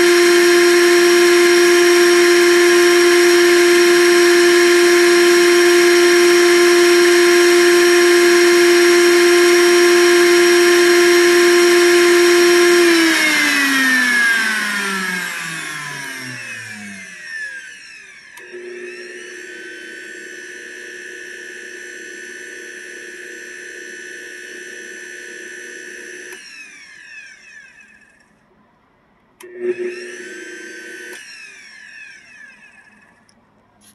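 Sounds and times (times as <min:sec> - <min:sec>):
blender motor running: 0:00.0 - 0:28.3, 0:29.4 - 0:33.3
motor spinning down whine: 0:00.0 - 0:28.3, 0:29.4 - 0:33.3
click: 0:18.3 - 0:18.6, 0:32.8 - 0:33.9.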